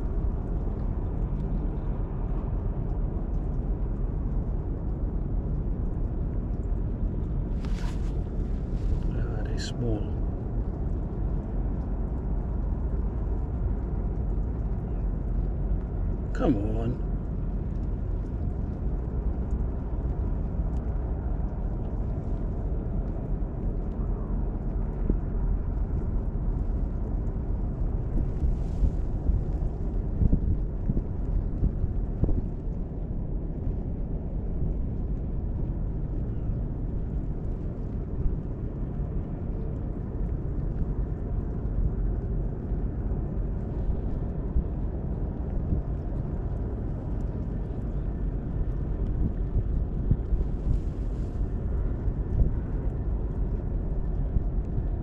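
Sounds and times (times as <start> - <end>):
outdoor waterside ambience: 0.0 - 55.0
wind buffeting microphone: 17.0 - 55.0.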